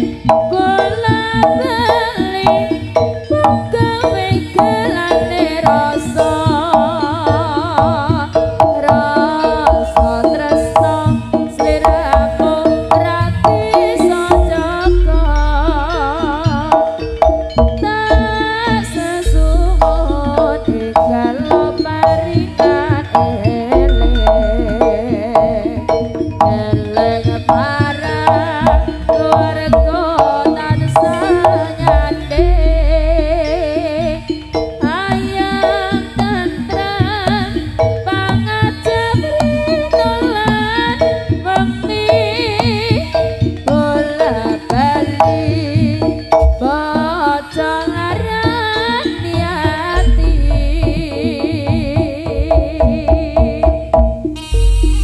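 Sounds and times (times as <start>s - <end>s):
held ringing tones: 0.0s - 52.5s, 53.8s - 55.0s
hand drums playing quick rhythm: 0.0s - 55.0s
wavering ornamented melody: 0.0s - 55.0s
deep low booms: 19.2s - 20.8s, 31.9s - 33.6s.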